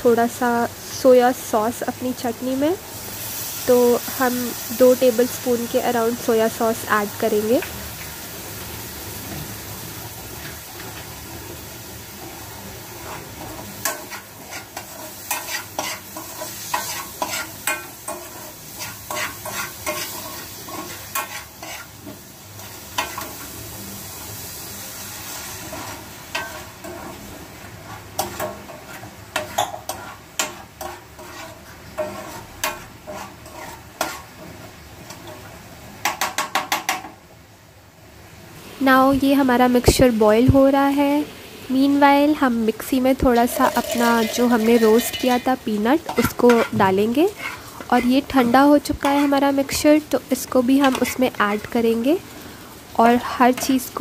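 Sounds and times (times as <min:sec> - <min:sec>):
food sizzling in a hot pan: 0:00.0 - 0:54.0
spoon scraping and tapping pan: 0:13.8 - 0:21.9, 0:28.2 - 0:34.3, 0:36.0 - 0:37.2, 0:43.3 - 0:48.2.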